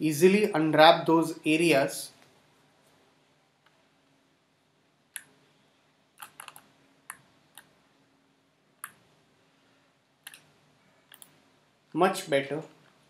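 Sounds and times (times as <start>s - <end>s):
faint steady hum: 0.0s - 13.0s
mouse and keyboard clicks: 6.2s - 7.7s, 11.1s - 11.4s.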